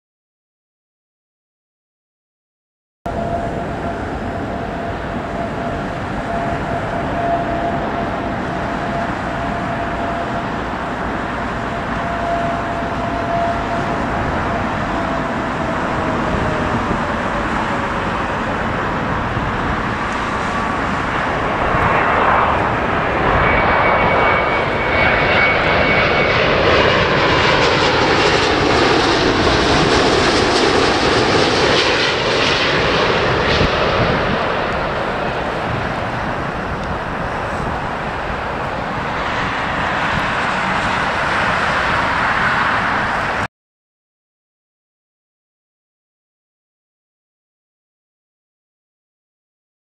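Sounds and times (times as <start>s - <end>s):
jet airliner engines rumbling: 3.1s - 43.5s
jet engine whine: 3.1s - 43.5s.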